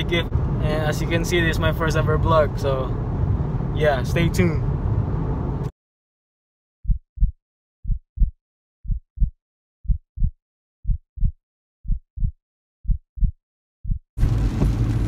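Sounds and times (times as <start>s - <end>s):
in-car road noise: 0.0s - 5.7s, 14.2s - 15.0s
heartbeat thumps: 6.8s - 14.8s.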